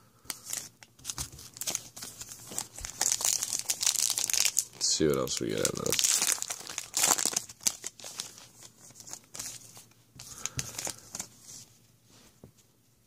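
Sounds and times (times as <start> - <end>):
plastic wrapper tearing and crinkling: 0.3 - 11.3
wrapper rustling: 0.3 - 11.6.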